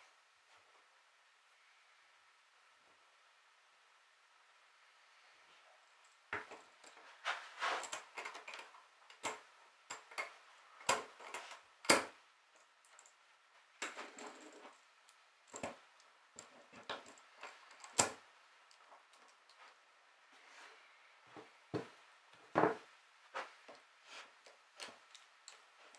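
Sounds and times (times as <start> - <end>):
metal parts clicking and clinking: 15.5 - 19.6.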